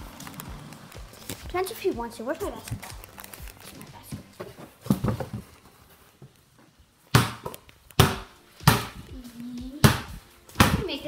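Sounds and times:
basketball bouncing on hard floor: 0:07.1 - 0:09.1, 0:09.8 - 0:11.0.

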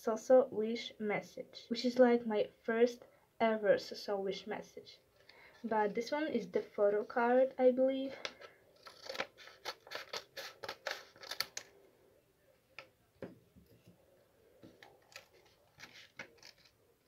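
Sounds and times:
scissors cutting paper: 0:08.3 - 0:11.7, 0:14.7 - 0:16.8.

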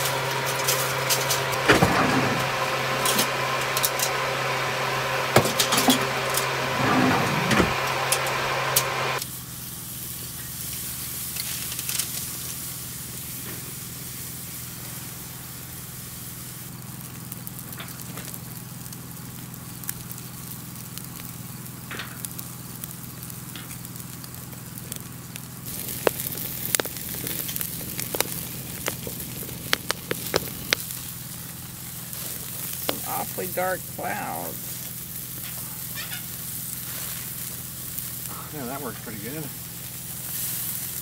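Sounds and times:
burning logs crackling: 0:00.0 - 0:41.0
steaks sizzling on grill: 0:00.0 - 0:41.0
sharp pops from fire: 0:09.2 - 0:14.3, 0:16.3 - 0:38.7, 0:39.3 - 0:41.0.

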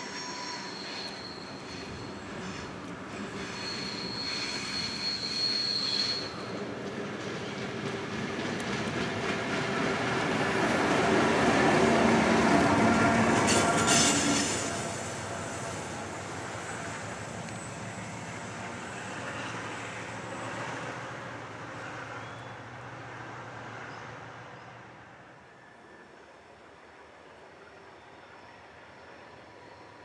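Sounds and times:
high screech: 0:00.0 - 0:06.5, 0:13.4 - 0:16.8
diesel locomotive engine drone: 0:00.0 - 0:30.0.

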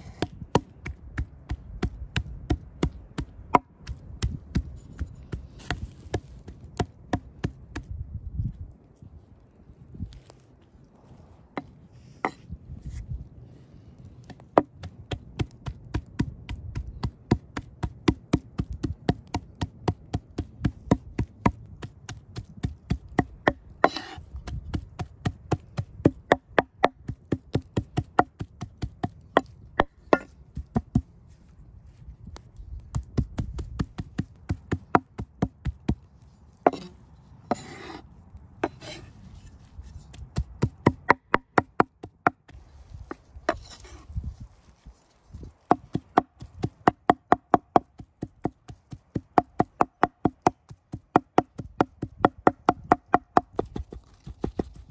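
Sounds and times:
knife chopping on wooden board: 0:00.0 - 0:07.9, 0:14.3 - 0:31.0, 0:32.9 - 0:35.9, 0:36.7 - 0:36.9, 0:37.5 - 0:38.0, 0:45.7 - 0:54.7.

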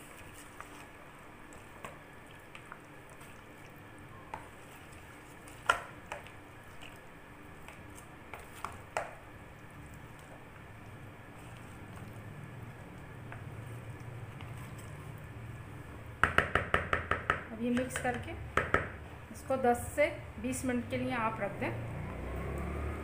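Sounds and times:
wet squelching: 0:00.0 - 0:09.0, 0:09.6 - 0:15.3.

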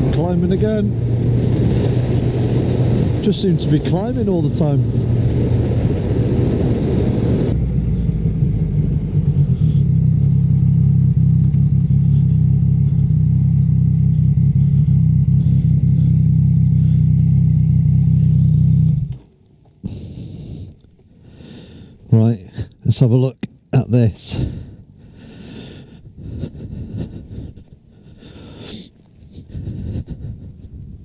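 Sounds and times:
wind rush on microphone: 0:00.0 - 0:09.7, 0:29.3 - 0:31.0
motorcycle engine: 0:00.0 - 0:20.7.

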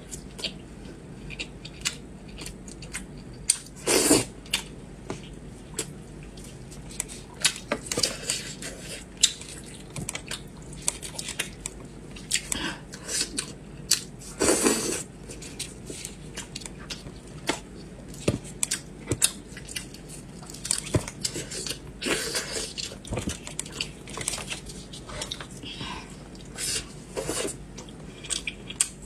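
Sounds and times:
wet eating clicks and smacks: 0:04.5 - 0:08.1, 0:09.2 - 0:12.6, 0:16.4 - 0:21.8, 0:27.8 - 0:29.0.

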